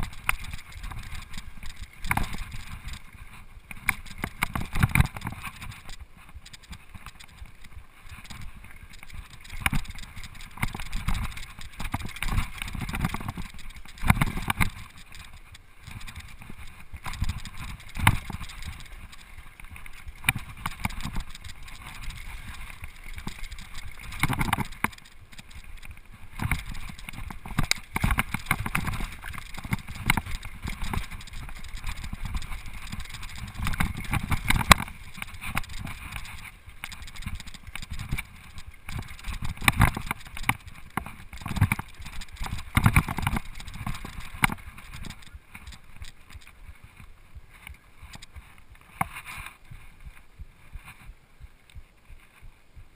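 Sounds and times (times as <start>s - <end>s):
bike rattles and knocks: 0.0s - 47.0s.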